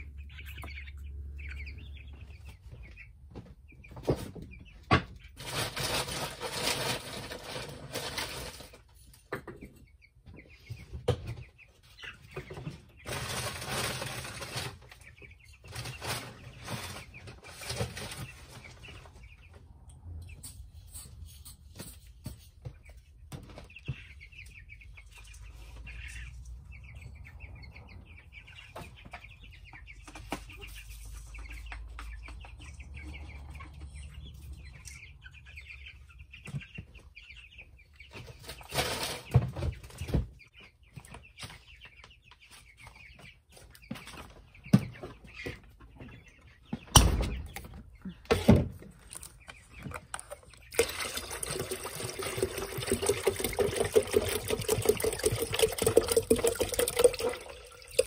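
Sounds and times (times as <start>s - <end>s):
baby chicks peeping: 0.0s - 58.0s
water pouring: 50.7s - 58.0s.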